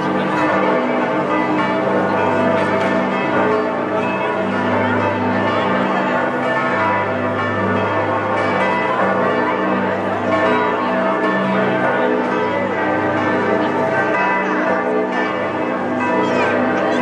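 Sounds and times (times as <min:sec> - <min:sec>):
church bells pealing: 0:00.0 - 0:17.0.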